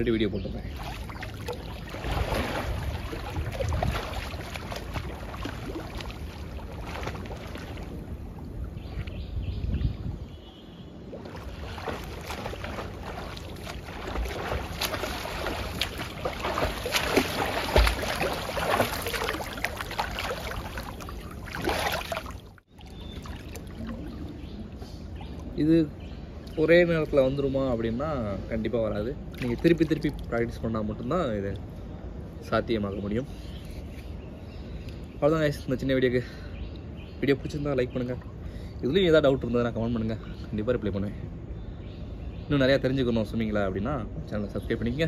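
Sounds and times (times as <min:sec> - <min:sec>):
swimmer splashing water: 0:00.6 - 0:09.2, 0:11.0 - 0:25.6.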